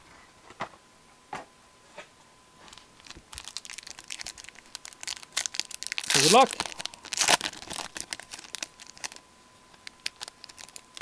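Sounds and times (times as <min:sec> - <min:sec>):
foil wrapper crinkling: 0:02.7 - 0:11.0.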